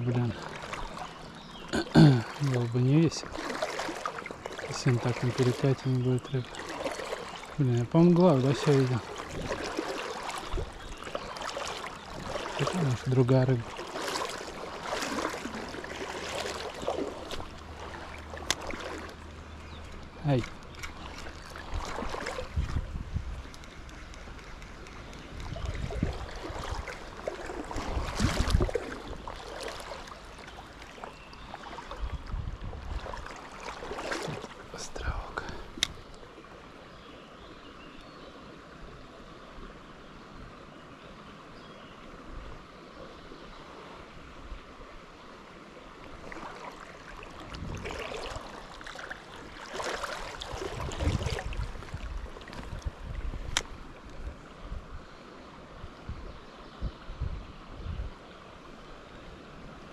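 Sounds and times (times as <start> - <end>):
water splashing around legs: 0.0 - 36.2, 46.0 - 54.4
river running over a riffle: 0.0 - 36.9, 43.6 - 56.1.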